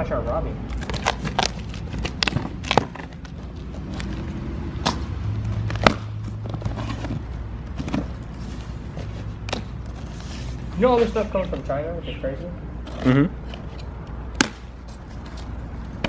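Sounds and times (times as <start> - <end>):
blade slicing packing tape: 0.7 - 4.2.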